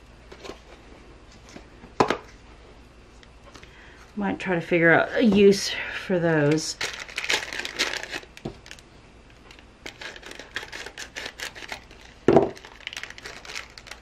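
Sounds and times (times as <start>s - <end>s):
plastic packaging crinkling: 6.4s - 14.0s.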